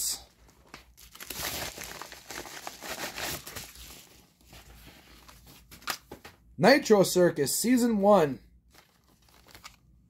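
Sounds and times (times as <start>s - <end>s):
paper mailer tearing and crinkling: 1.0s - 4.1s.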